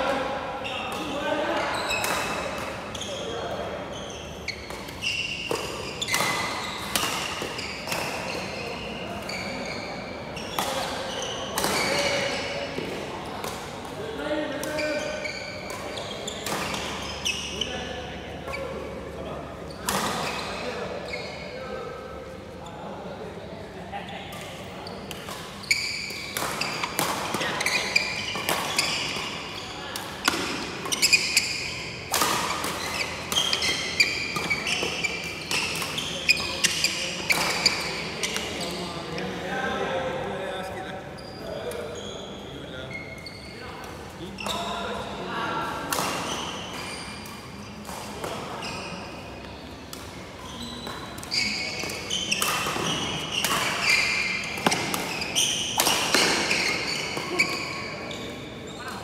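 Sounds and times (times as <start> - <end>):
sneakers squeaking: 0.0 - 22.9, 24.0 - 39.8, 40.4 - 59.0
racket hitting shuttlecock: 4.4 - 8.7, 10.4 - 14.0, 15.6 - 17.5, 25.1 - 38.6, 45.9 - 48.5, 50.8 - 57.8.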